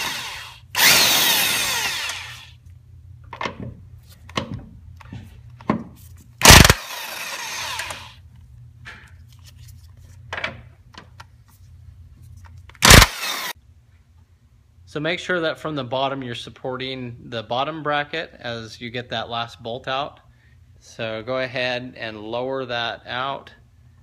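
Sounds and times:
impact wrench bursts: 0.0 - 2.6, 6.4 - 8.2, 12.8 - 13.6
steady low hum: 0.0 - 24.0.

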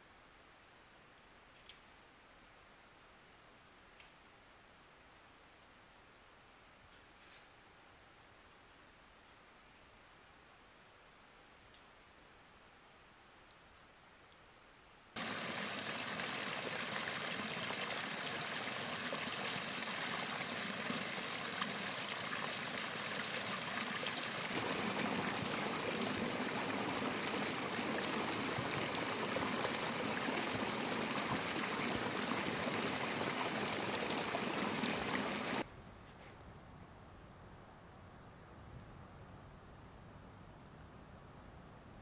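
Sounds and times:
mountain stream running: 15.2 - 35.6.

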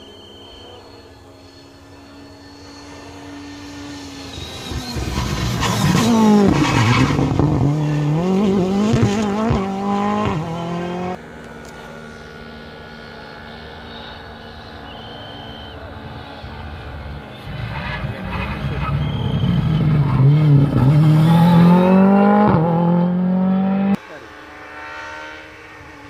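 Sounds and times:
rally car engine revving past: 2.6 - 11.2, 15.4 - 26.0.

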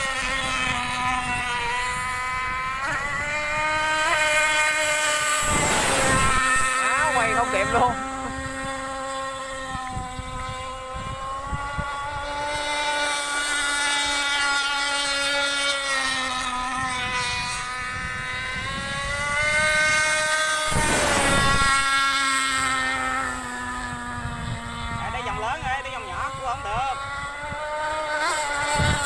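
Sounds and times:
boat rushing past: 0.0 - 29.0
model boat motor whining: 0.0 - 29.0.

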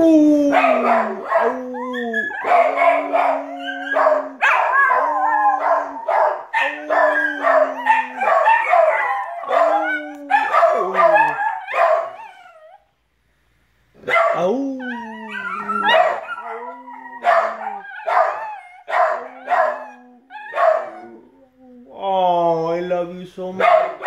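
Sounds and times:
man howling low notes: 0.0 - 11.4, 14.4 - 17.9
small dogs howling and yipping: 0.4 - 12.9, 14.2 - 21.9.

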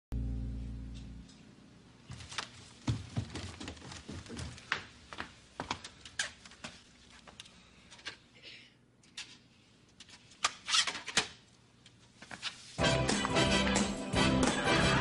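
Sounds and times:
footsteps on stairs: 2.1 - 7.3.

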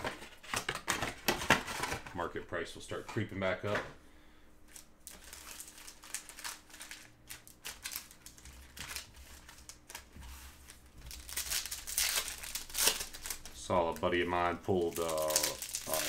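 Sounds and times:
plastic wrappers crinkling: 4.7 - 16.0.

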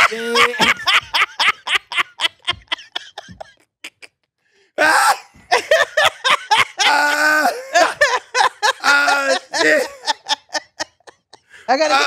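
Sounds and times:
people laughing: 0.0 - 4.1, 5.4 - 12.0.

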